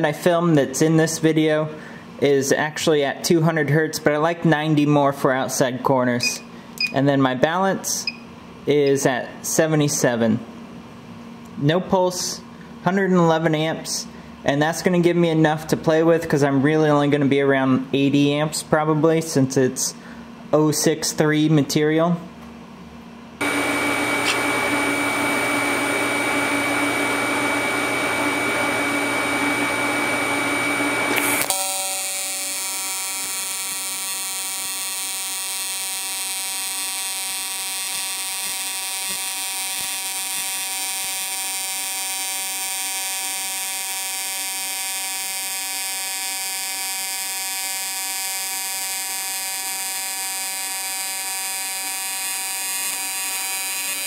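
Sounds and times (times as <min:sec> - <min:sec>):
welding arc buzzing: 0:23.4 - 0:54.0.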